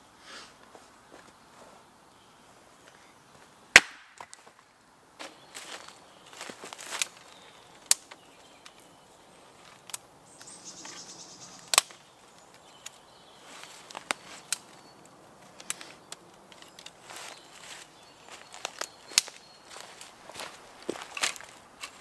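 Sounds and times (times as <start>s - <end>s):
dry twigs snapping: 3.7s - 4.6s, 5.2s - 8.9s, 9.6s - 11.0s, 11.6s - 22.0s
footsteps rustling dry leaves: 4.3s - 22.0s.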